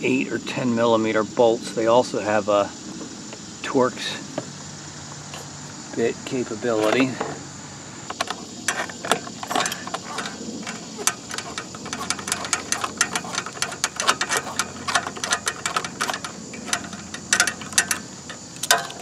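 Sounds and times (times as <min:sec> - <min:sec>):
socket ratchet clicking: 0:08.1 - 0:19.0.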